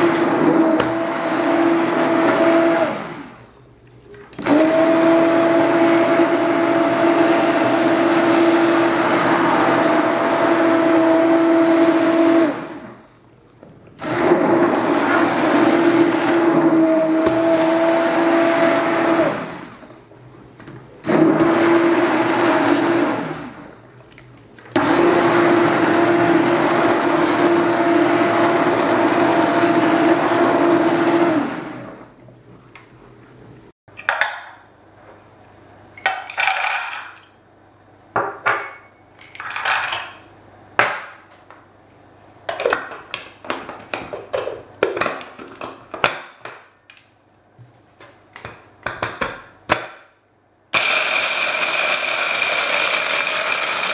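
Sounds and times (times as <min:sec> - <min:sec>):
hand blender motor running: 0:14.0 - 0:19.7, 0:24.8 - 0:31.9, 0:50.8 - 0:53.9.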